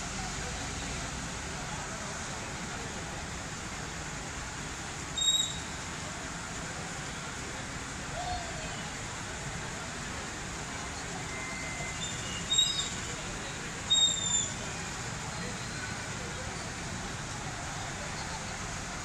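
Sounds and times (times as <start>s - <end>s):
outdoor background noise: 0.0s - 19.0s
short high-pitched whistles: 5.2s - 5.7s, 11.2s - 13.2s, 13.9s - 14.8s.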